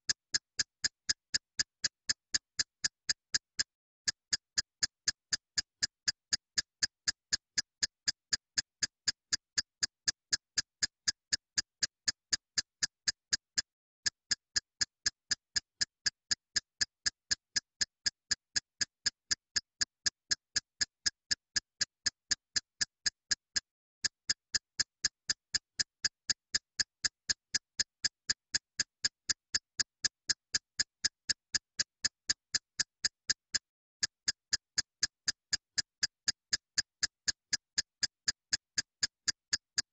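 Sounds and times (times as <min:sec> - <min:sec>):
clock-like ticking: 0:14.3 - 0:39.9.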